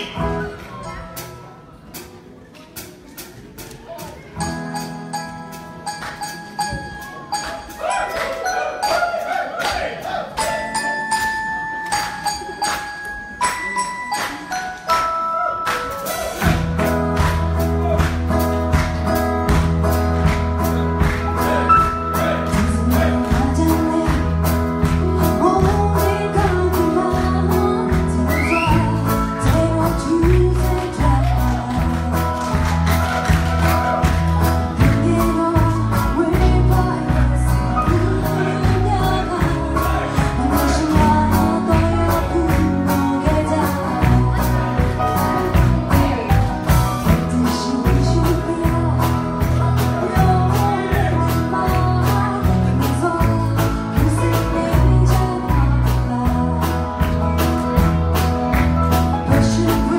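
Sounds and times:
guitars: 10.4s - 59.9s
deep bass notes: 16.4s - 59.9s
woman singing: 22.5s - 32.8s, 34.8s - 46.4s, 47.0s - 57.4s, 59.2s - 59.9s.

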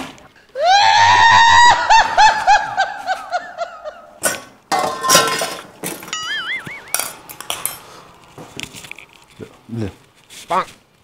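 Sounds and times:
clattering crash: 4.2s - 7.9s
bouncing tone effect: 6.1s - 7.2s
short warbling tone: 6.1s - 7.3s.

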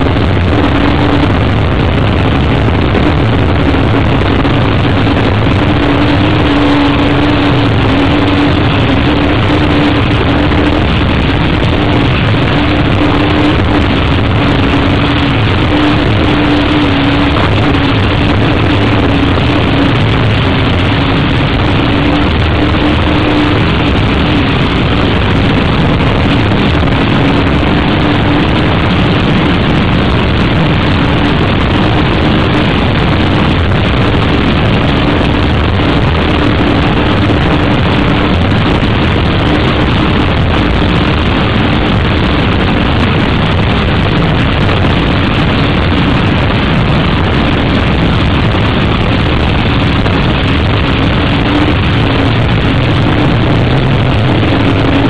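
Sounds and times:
powerboat engine drone: 0.0s - 55.0s
rushing wind and water: 0.0s - 55.0s.

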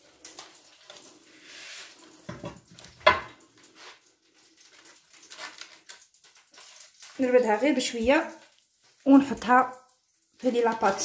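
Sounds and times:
dish knocking: 2.3s - 3.4s
dishes clinking: 2.3s - 3.4s.

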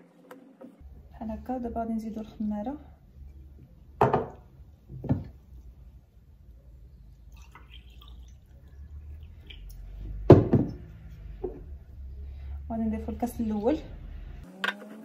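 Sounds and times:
glass bottle knocking on table: 4.0s - 4.4s, 10.3s - 10.8s
water trickling into glass: 7.2s - 10.3s.

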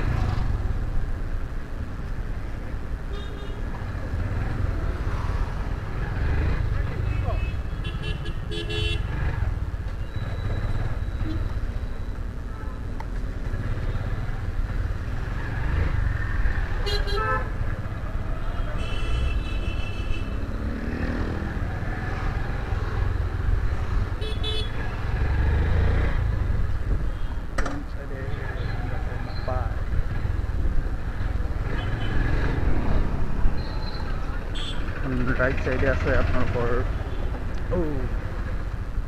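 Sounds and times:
motorcycle rumbling: 0.0s - 39.0s
vehicle horns honking: 7.1s - 9.2s, 16.8s - 17.6s, 18.6s - 20.4s, 24.2s - 24.8s, 33.8s - 34.9s.

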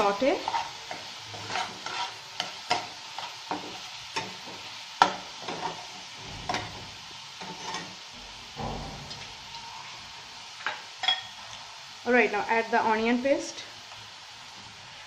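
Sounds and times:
ghee sizzling in a pan: 0.0s - 15.0s
spatula scraping and knocking pan: 0.4s - 10.0s.

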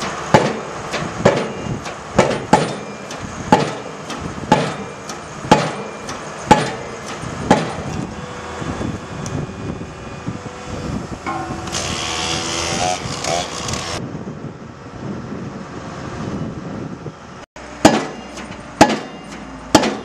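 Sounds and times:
pile-driving hammer blows: 0.0s - 8.1s, 11.2s - 14.0s, 17.8s - 20.0s
rig engine running: 0.0s - 20.0s.

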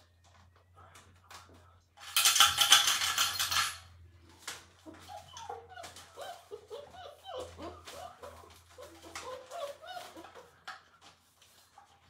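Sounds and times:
small hard pieces clattering: 2.0s - 3.8s
puppies whimpering and whining: 4.6s - 10.9s.

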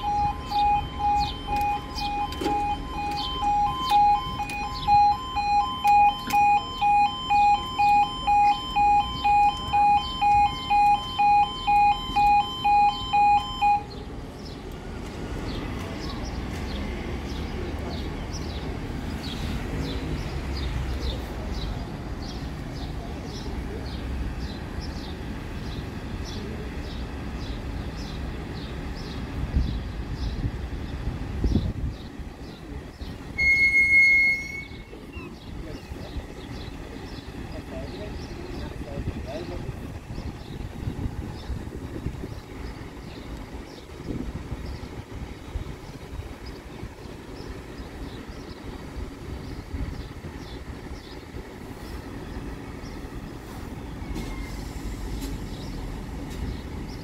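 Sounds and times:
level crossing alarm two-tone yodel: 0.0s - 14.0s, 33.4s - 35.4s
steady low rumble: 34.4s - 53.4s.

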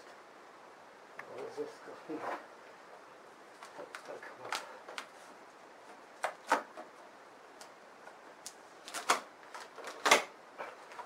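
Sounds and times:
hands peeling packing tape off plastic: 8.4s - 11.0s.

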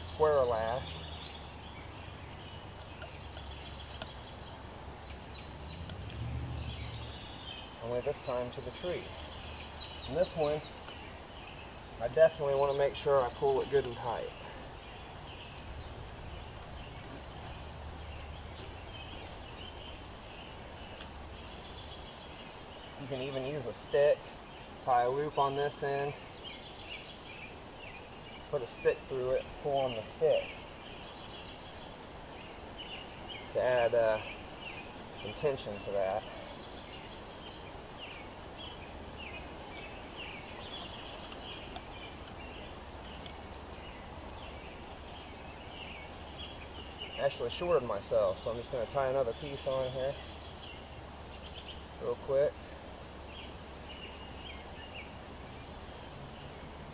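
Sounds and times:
low steady rumble: 0.0s - 23.8s
bird chirping: 0.0s - 56.9s
outdoor background hiss: 0.0s - 56.9s.

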